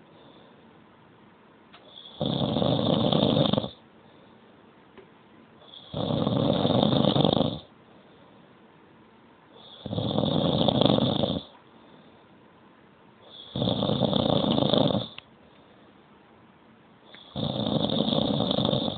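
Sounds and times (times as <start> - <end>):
person snoring: 1.9 - 3.8, 5.6 - 7.7, 9.6 - 11.5, 13.3 - 15.2, 17.1 - 18.9.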